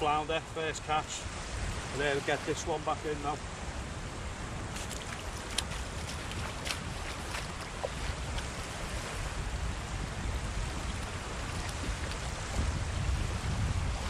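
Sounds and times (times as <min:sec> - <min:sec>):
shallow surf: 0:00.0 - 0:14.0
wind on microphone: 0:01.1 - 0:14.0
splashing steps in water: 0:04.7 - 0:08.9, 0:10.9 - 0:12.7.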